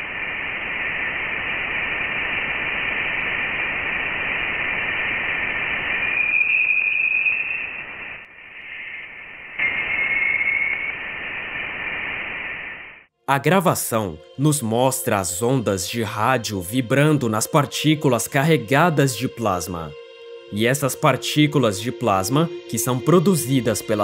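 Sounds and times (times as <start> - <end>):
static-like radio hiss: 0.0 - 13.1
thin high whistle: 5.6 - 12.2.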